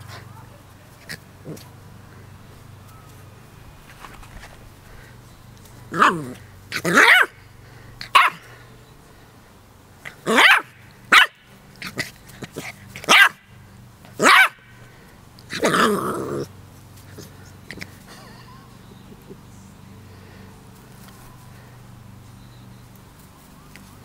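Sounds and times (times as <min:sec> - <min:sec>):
puppy barking: 0:06.8 - 0:07.4, 0:08.1 - 0:08.4, 0:10.3 - 0:11.4, 0:13.0 - 0:13.4, 0:14.2 - 0:14.6.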